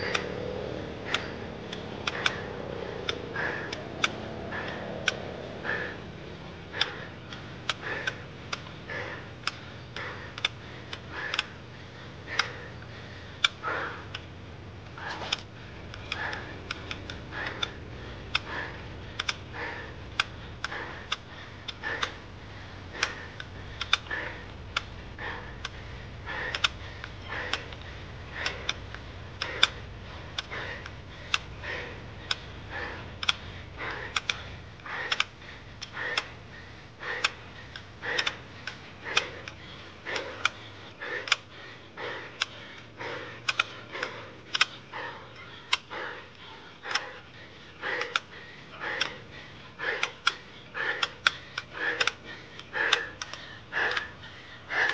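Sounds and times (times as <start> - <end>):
low hum: 0.0 - 54.9
sharp clicks and taps: 1.1 - 5.3, 9.4 - 11.5, 12.3 - 22.2, 22.9 - 36.4, 37.0 - 41.5, 42.3 - 44.8.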